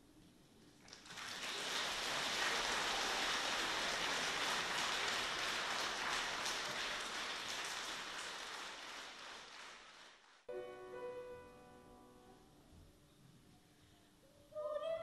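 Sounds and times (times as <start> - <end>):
audience applauding: 0.8 - 10.5.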